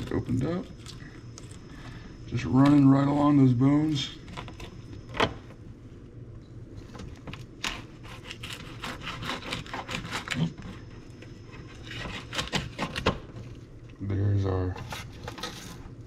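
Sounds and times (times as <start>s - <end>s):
knife scraping over fish bones: 7.6s - 10.6s.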